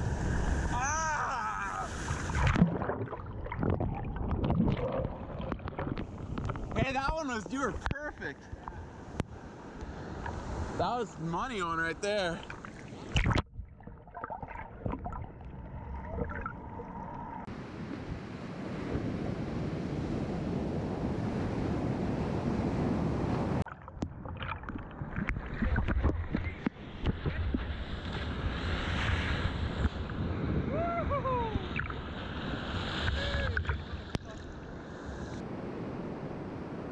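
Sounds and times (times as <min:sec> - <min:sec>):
breaking waves: 0:00.0 - 0:13.4, 0:24.3 - 0:36.9
muffled underwater surf: 0:00.0 - 0:36.9
wind: 0:00.0 - 0:36.9
water splashing: 0:00.2 - 0:09.0, 0:09.9 - 0:17.5, 0:23.6 - 0:30.0.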